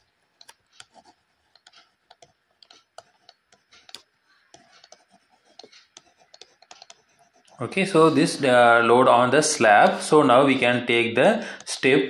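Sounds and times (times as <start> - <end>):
stylus tapping on a screen: 1.6 - 7.2.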